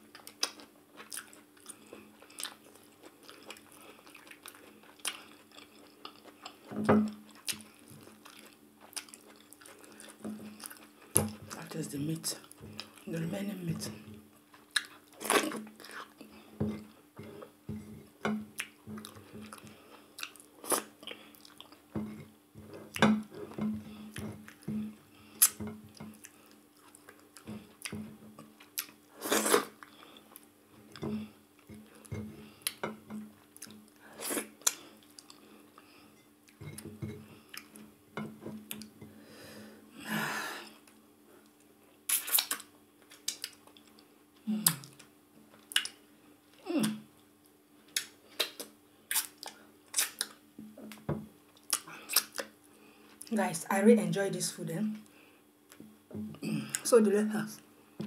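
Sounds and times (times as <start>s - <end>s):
faint steady hum: 0.0s - 58.0s
wet chewing with lip smacks: 0.1s - 6.7s, 7.3s - 11.3s, 14.4s - 16.0s, 25.4s - 30.5s, 42.1s - 44.0s, 51.6s - 52.5s.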